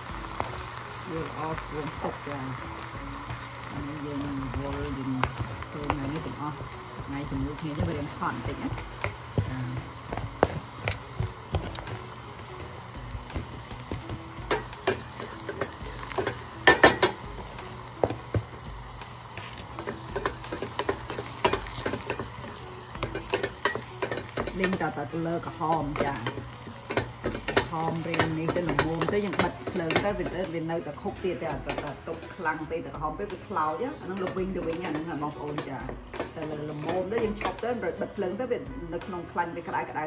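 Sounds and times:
food sizzling in a pan: 0.0s - 40.0s
utensil scraping a pan: 0.3s - 30.9s.

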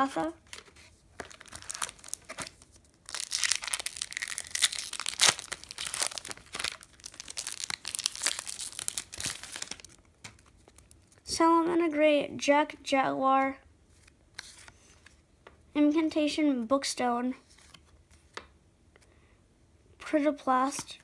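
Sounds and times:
foil wrapper crinkling and tearing: 1.2s - 11.0s.

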